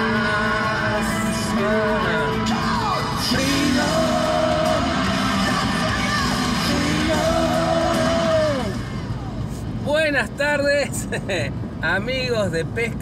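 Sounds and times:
person singing long notes: 0.0s - 8.8s
loud rock music: 0.0s - 9.3s.

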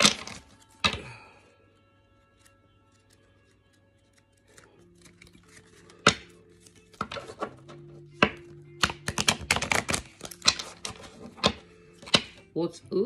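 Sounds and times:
card slaps and taps: 0.0s - 1.0s, 4.5s - 12.4s
cards riffling: 0.0s - 1.2s, 2.1s - 12.5s.

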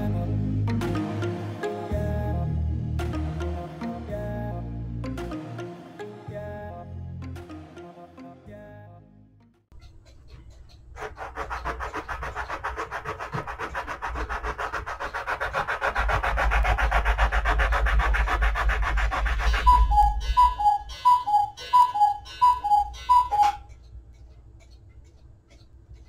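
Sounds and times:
wood sanding on abrasive block: 11.0s - 20.2s
cuckoo clock call: 19.5s - 23.9s.

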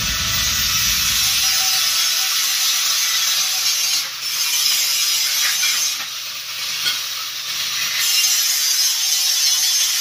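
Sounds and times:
low electrical hum: 0.0s - 1.8s
welding arc hissing: 0.0s - 1.9s.

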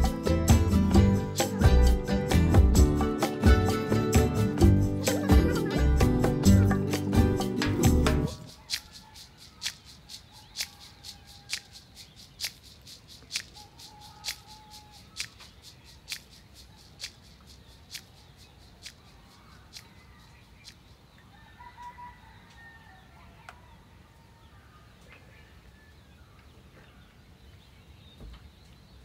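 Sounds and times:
sharp clicks: 18.7s - 19.9s.

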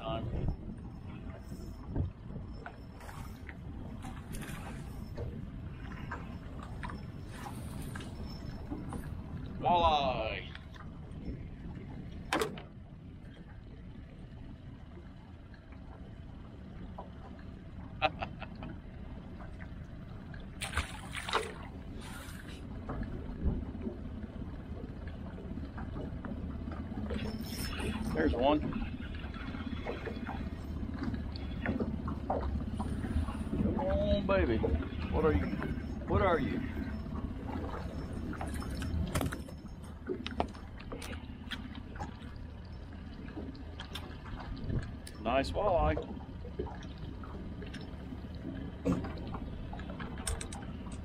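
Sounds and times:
steady low rumble: 0.0s - 51.0s
water lapping against metal boat: 0.0s - 51.0s
light clicks: 49.8s - 51.0s.

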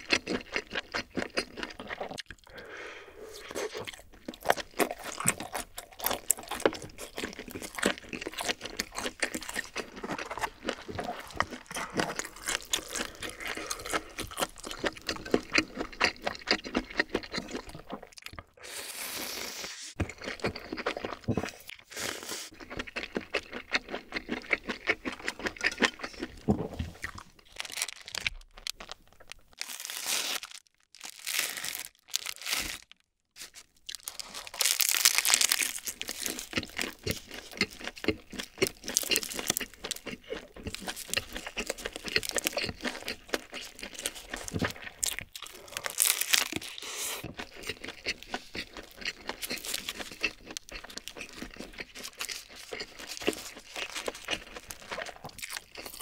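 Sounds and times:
seaweed crunching while chewed: 0.0s - 2.6s, 3.3s - 18.8s, 20.0s - 56.0s
plastic wrapper crinkling: 27.1s - 36.8s.

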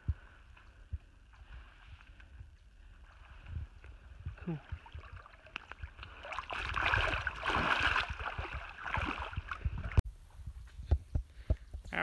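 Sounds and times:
water sloshing while wading: 1.6s - 10.0s.

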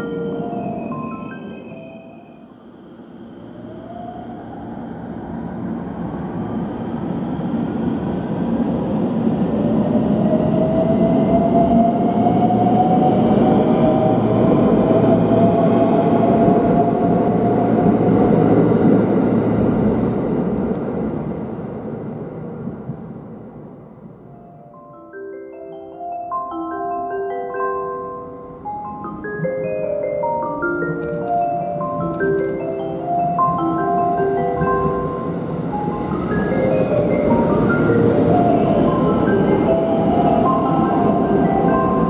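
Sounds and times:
train wheels rumbling on rails: 4.7s - 24.3s.

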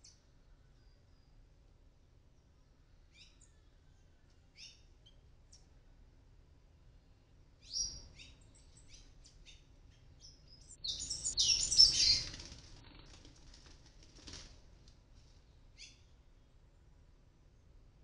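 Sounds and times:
fledglings chirping: 10.2s - 12.5s
wings flapping: 11.4s - 15.4s.

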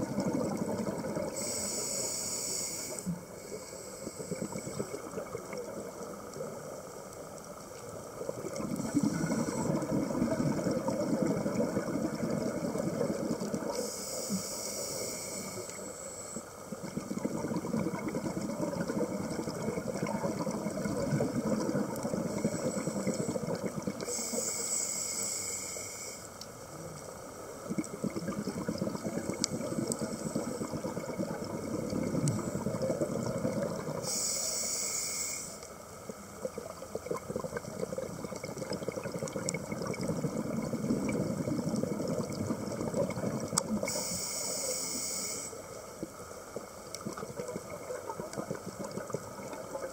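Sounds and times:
underwater bubbling: 0.0s - 49.9s
regulator hissing inhale: 1.3s - 5.0s, 8.8s - 9.8s, 13.7s - 16.6s, 22.2s - 26.4s, 34.0s - 35.8s, 43.8s - 45.8s.

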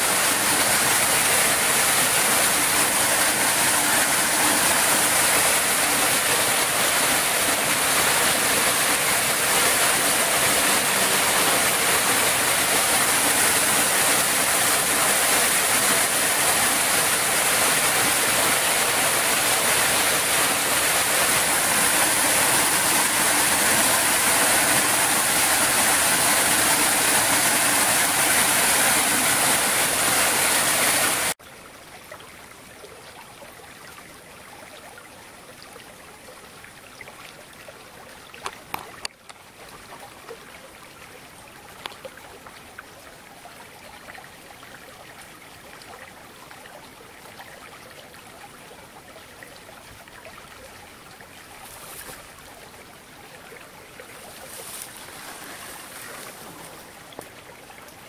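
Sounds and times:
water rushing over rocks: 0.0s - 31.4s, 51.5s - 58.0s.

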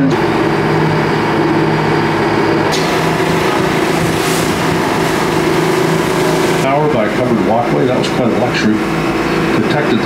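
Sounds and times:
boat engine droning: 0.0s - 10.0s
water rushing past hull: 0.2s - 9.5s
hiss of water and wind: 2.7s - 7.3s.

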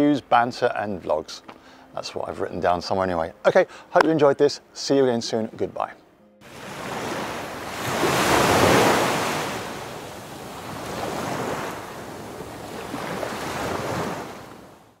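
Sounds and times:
rushing water whoosh: 6.4s - 14.8s.

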